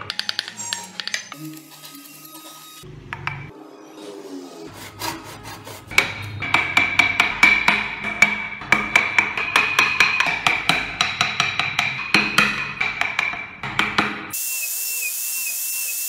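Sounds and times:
hand file rasping on wood: 4.7 - 6.0.

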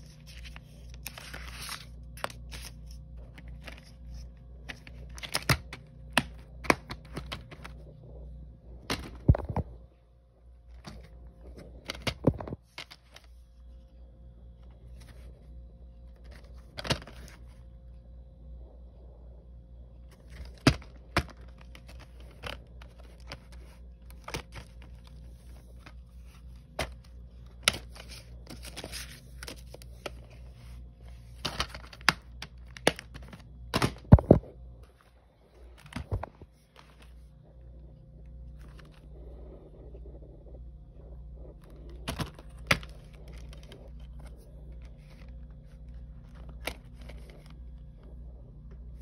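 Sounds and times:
steady low hum: 0.0 - 49.0
packaging clicks and knocks: 20.1 - 30.4, 31.3 - 34.5, 41.6 - 47.6.

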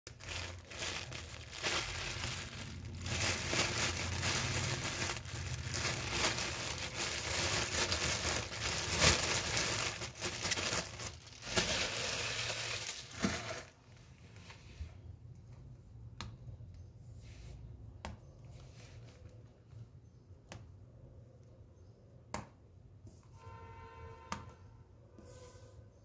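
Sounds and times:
plastic packaging crinkling and tearing: 0.1 - 14.5.

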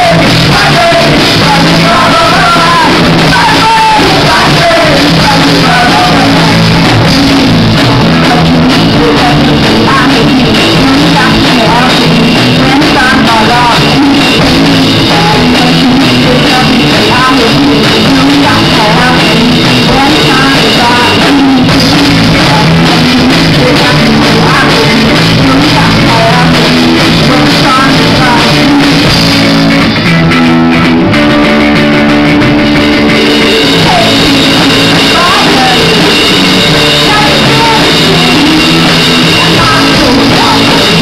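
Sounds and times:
woman singing: 0.0 - 29.3, 33.1 - 41.0
bass guitar: 0.0 - 41.0
drums: 0.0 - 41.0
electric guitars: 0.0 - 41.0.

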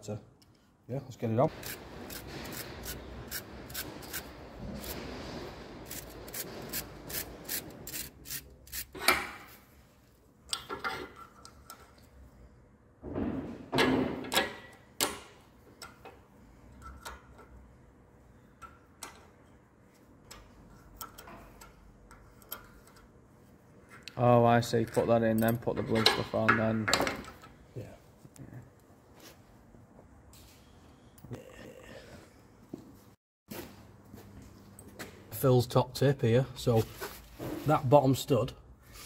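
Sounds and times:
hands rubbing and scraping tools: 1.5 - 5.1.

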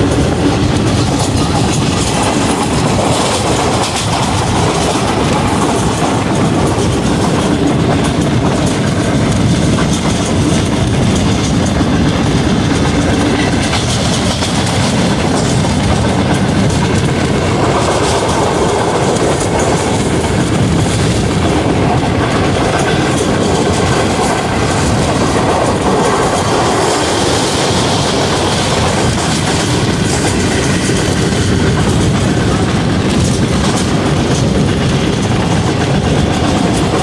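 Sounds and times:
train wheels rumbling on track: 0.0 - 37.0.

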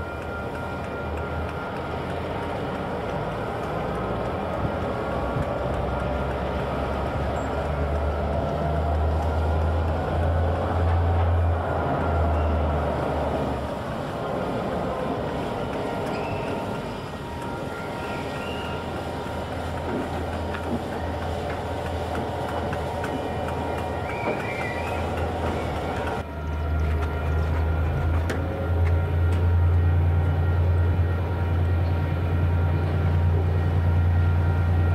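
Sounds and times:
locomotive engine drone: 0.0 - 34.9.

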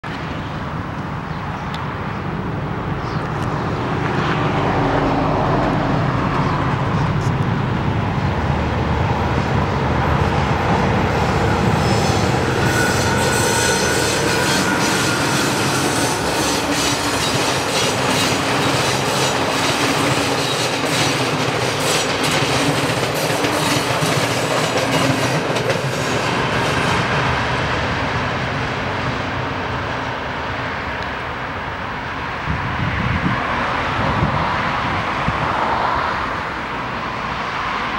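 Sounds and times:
diesel locomotive engine: 0.0 - 37.9
train wheels clattering over rail joints: 12.6 - 27.1.

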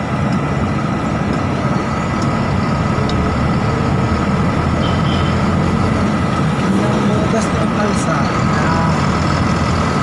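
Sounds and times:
road noise: 0.0 - 10.0
truck engine rumble: 0.0 - 10.0.

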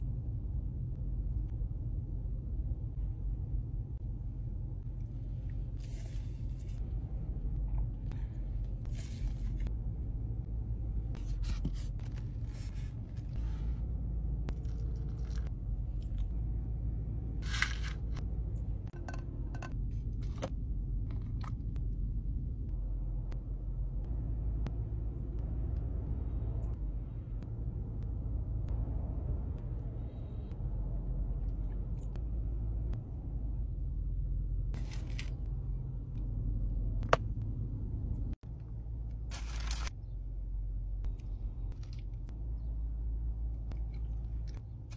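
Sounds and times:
car interior rumble: 0.0 - 44.9
paper wrapper rustling: 39.3 - 39.9.

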